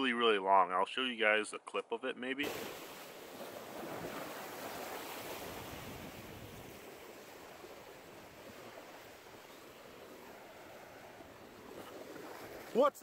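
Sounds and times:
wind: 0:00.0 - 0:13.0
waves washing against rocky shore: 0:02.4 - 0:13.0.

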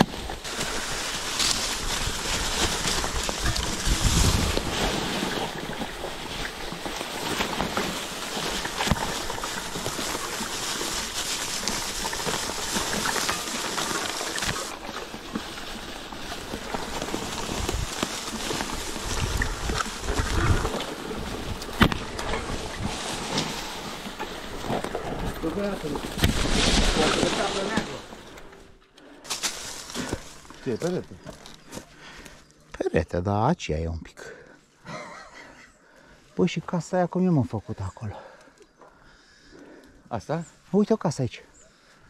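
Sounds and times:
bike rattling: 0:00.0 - 0:32.5
bike tyres crunching over leaves: 0:00.0 - 0:32.7
wind gusts on microphone: 0:02.0 - 0:05.0.

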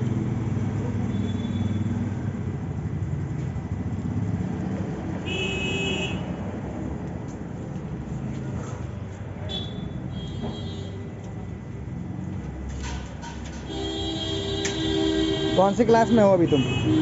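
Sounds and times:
short vehicle horn toot: 0:13.7 - 0:15.7.

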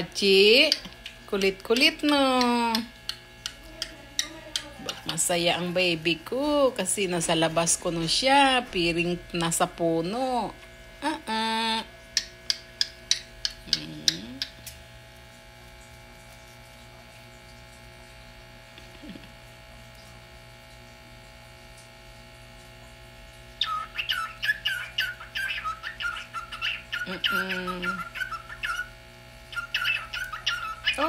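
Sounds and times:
cockatiel chirps: 0:23.6 - 0:28.9, 0:29.5 - 0:31.0
cockatiel warbling chatter: 0:23.6 - 0:28.9, 0:29.5 - 0:31.0.

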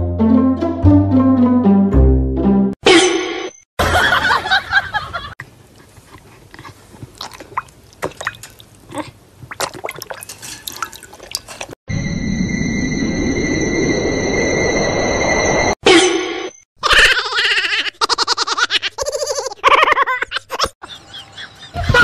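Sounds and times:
dog lapping water: 0:05.8 - 0:11.8.

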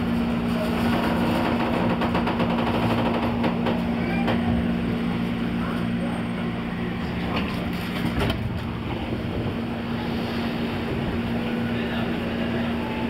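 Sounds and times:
electric train low hum: 0:00.0 - 0:13.0
wheels clicking over rail joints: 0:00.5 - 0:04.5.

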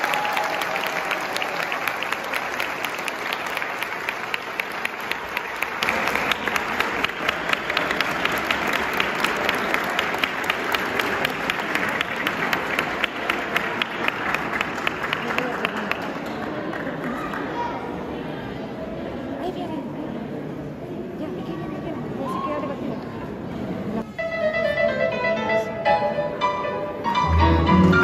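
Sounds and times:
audience applauding: 0:00.0 - 0:17.7.

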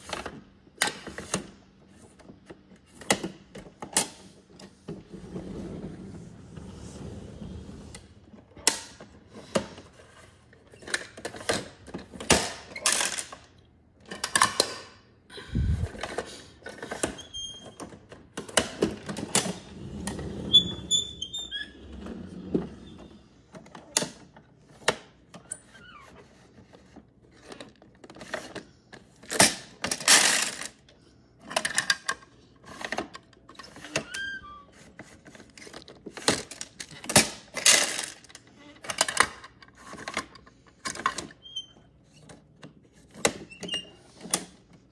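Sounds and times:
plastic toys clattering on wood: 0:10.7 - 0:14.9, 0:26.3 - 0:30.8, 0:34.9 - 0:41.4.

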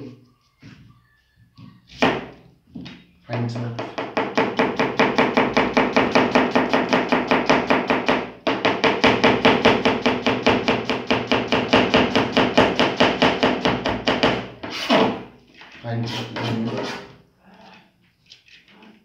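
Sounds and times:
knife chopping on plastic board: 0:03.8 - 0:15.2.

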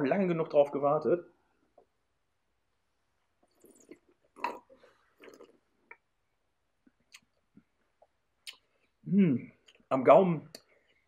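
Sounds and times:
mouth clicks and smacks: 0:06.8 - 0:09.9.

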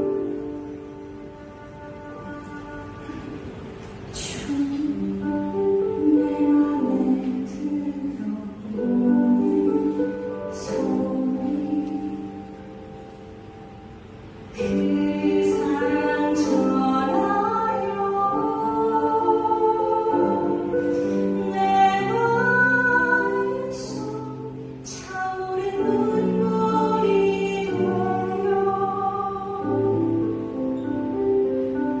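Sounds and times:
low held accompaniment notes: 0:00.0 - 0:32.0
woman singing into microphone: 0:04.1 - 0:12.6, 0:14.6 - 0:30.4.

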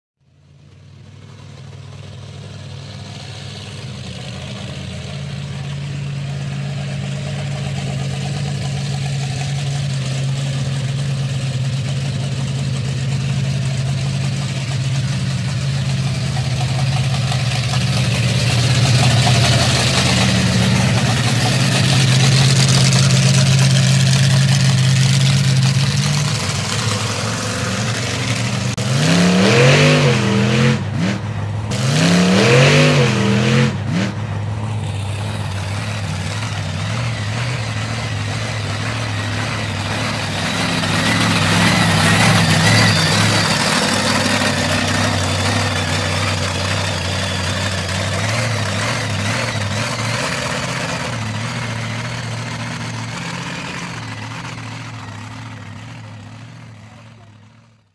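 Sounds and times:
truck engine idling: 0:00.2 - 0:31.8, 0:33.3 - 0:57.9
engine revving in quick blips: 0:17.2 - 0:55.0.

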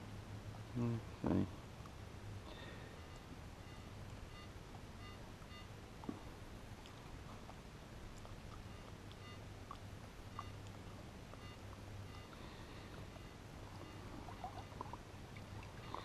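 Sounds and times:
low steady hum: 0:00.0 - 0:16.0
metal detector beeps: 0:11.4 - 0:12.5.

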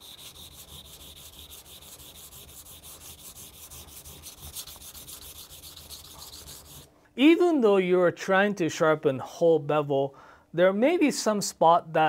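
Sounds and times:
knife sharpened on a whetstone: 0:00.0 - 0:06.9.

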